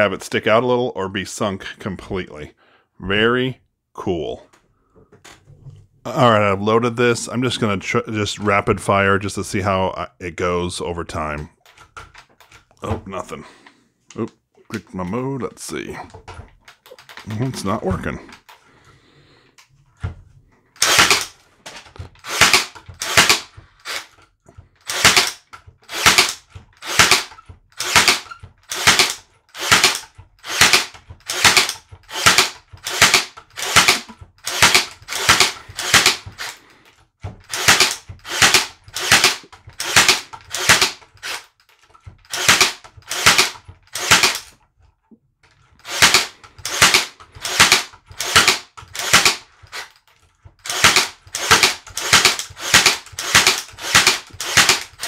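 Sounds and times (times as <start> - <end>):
nail gun snapping into wood: 20.8 - 24.1, 24.9 - 36.6, 37.4 - 44.6, 45.9 - 50.0, 50.6 - 55.0.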